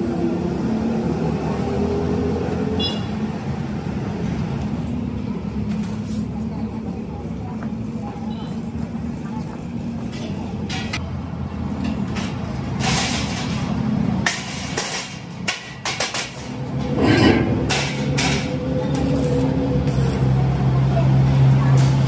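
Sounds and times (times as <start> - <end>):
steel sheet clanking: 14.3 - 18.6.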